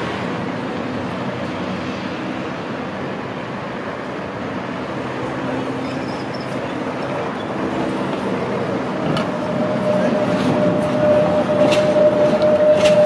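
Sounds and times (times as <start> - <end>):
passing car traffic: 0.0 - 13.0
tram wheel and motor rumble: 0.0 - 13.0
faint high squeal: 5.8 - 6.8, 9.3 - 13.0.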